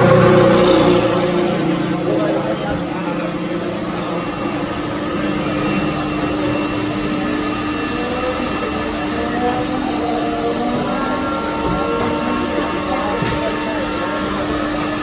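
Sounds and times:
machinery droning: 0.0s - 15.0s.

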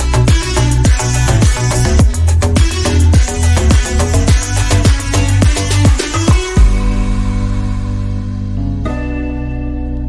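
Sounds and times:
upbeat electronic music: 0.0s - 10.0s.

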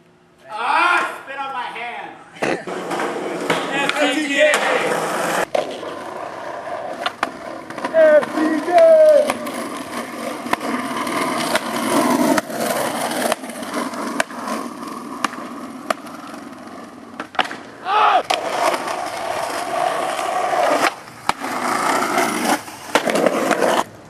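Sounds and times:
skateboard wheels rolling on concrete: 0.4s - 24.0s
skateboard clacks: 2.4s - 24.0s
person crying out: 17.8s - 18.2s.

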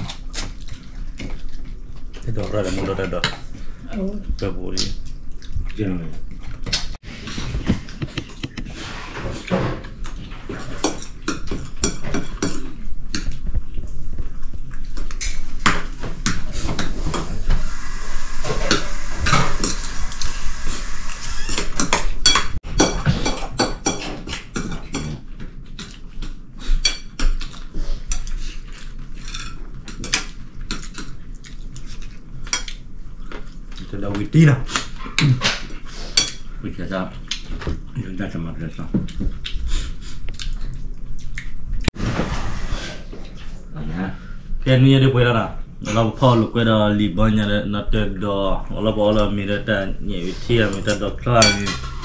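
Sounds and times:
dishes and cutlery clinking: 7.6s - 13.4s, 21.8s - 31.2s, 50.5s - 52.0s
steady hiss: 17.1s - 22.0s.

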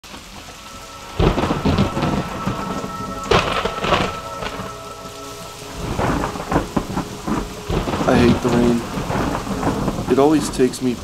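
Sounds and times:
steady rain: 0.0s - 11.0s
thunder cracks rumbling: 0.1s - 11.0s.

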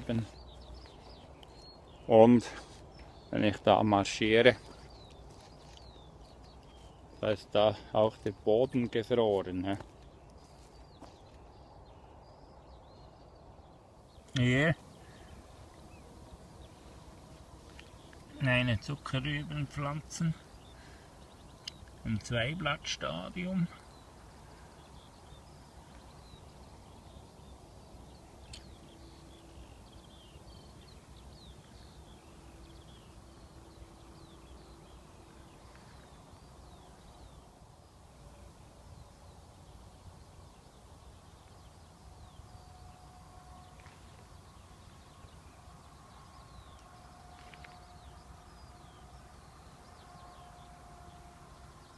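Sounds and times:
distant birds chirping: 0.0s - 51.9s.

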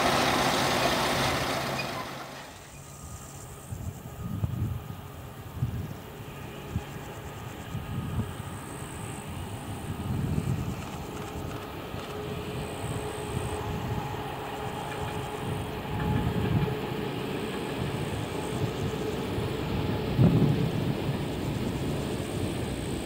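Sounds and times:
diesel engine running: 0.0s - 3.6s
train rumbling on track: 0.0s - 23.0s
wind buffeting microphone: 3.0s - 23.0s.

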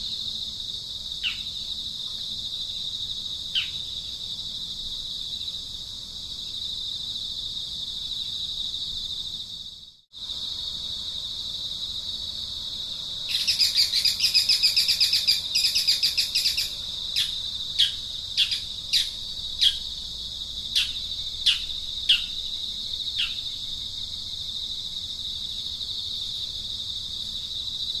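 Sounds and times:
insect drone: 0.0s - 28.0s
rapid chirping trill: 13.3s - 19.9s, 20.8s - 22.4s.

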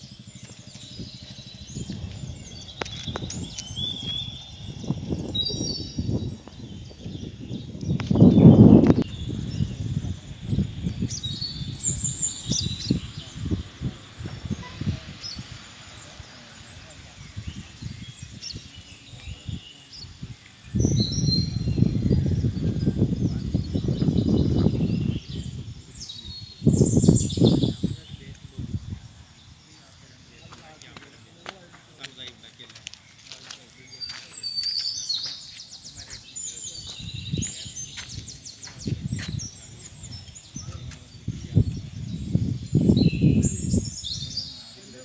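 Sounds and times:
low rumble on microphone: 0.0s - 31.4s, 33.6s - 45.0s
birds chirping and calling: 0.0s - 45.0s.

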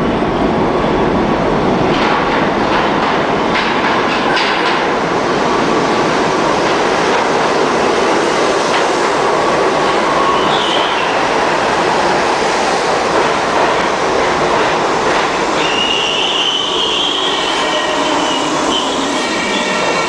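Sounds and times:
subway train wheels on track: 0.0s - 20.0s
high wheel squeal: 15.6s - 20.0s.

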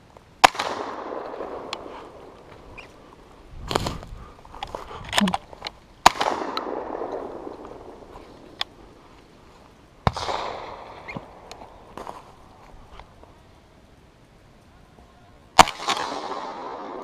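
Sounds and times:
shotgun shots with echo: 0.4s - 1.8s, 6.0s - 8.0s, 10.0s - 11.4s, 15.6s - 17.0s
rustling from handling gun: 1.2s - 5.9s, 6.6s - 9.9s.

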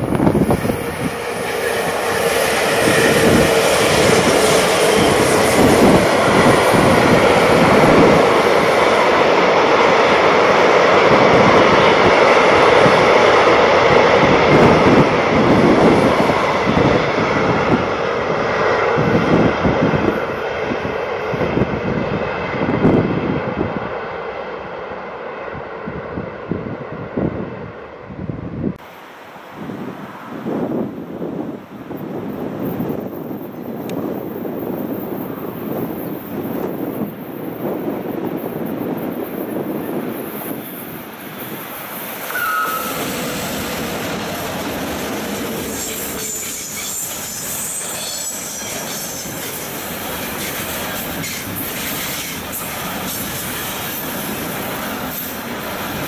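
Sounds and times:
train wheels rumbling on rails: 0.0s - 28.0s, 30.4s - 56.0s.

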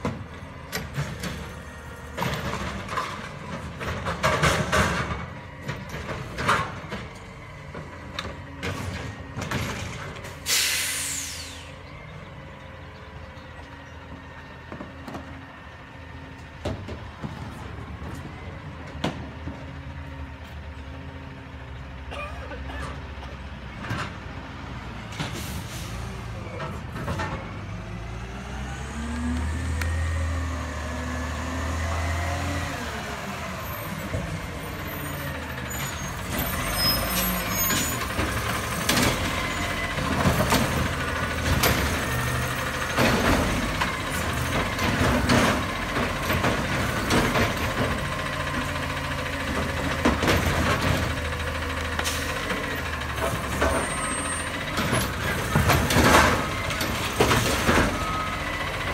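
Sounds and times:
garbage truck diesel engine: 0.0s - 58.9s
air brake hisses: 10.4s - 11.8s.

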